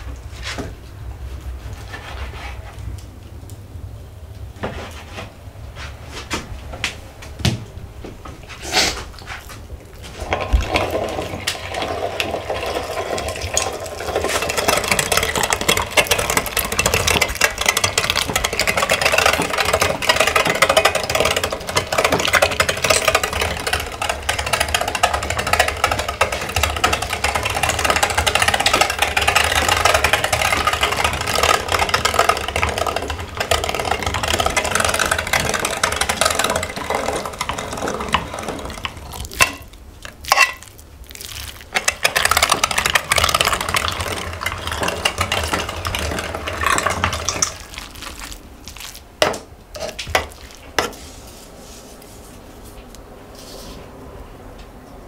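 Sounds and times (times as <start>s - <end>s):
meat grinder grinding: 10.2s - 50.8s.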